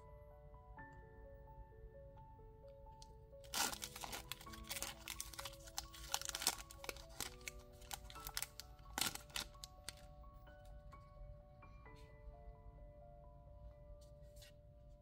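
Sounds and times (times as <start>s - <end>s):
soft background music: 0.0s - 15.0s
foil wrapper tearing and crinkling: 3.4s - 10.0s.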